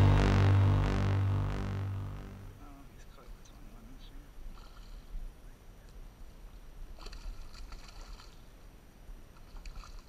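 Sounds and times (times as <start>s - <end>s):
low steady rumble: 0.0s - 2.9s
fish splashing in water: 7.0s - 8.4s.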